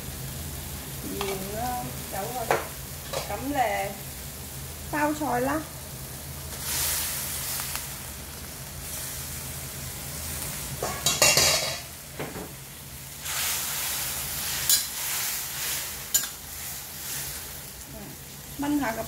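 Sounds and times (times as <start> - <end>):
cabbage sizzling in a wok: 0.0 - 19.0
metal spatula scraping wok: 10.8 - 11.9, 13.2 - 17.5.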